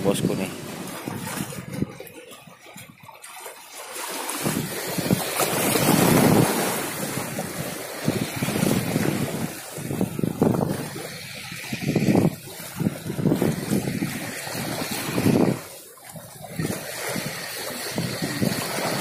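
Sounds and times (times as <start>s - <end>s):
wind buffeting microphone: 0.0s - 3.2s, 4.2s - 19.0s
sea water washing against rocks: 0.0s - 19.0s.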